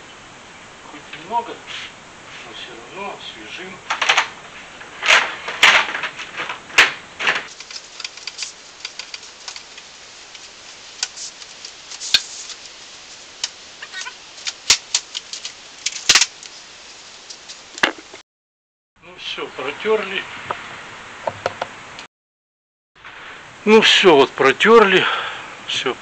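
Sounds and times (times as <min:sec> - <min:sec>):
blind slats clattering: 0:03.9 - 0:09.9
rag rubbing swishes: 0:07.5 - 0:15.4.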